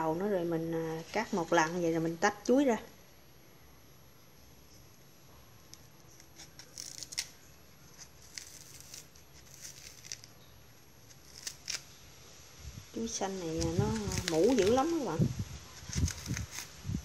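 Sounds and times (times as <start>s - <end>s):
knife scraping banana skin: 5.7s - 10.4s, 11.0s - 11.9s, 13.5s - 15.1s, 15.8s - 16.8s.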